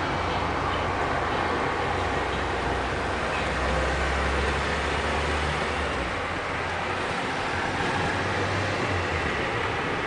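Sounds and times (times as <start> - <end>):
wind rumble on microphone: 7.0 - 10.0.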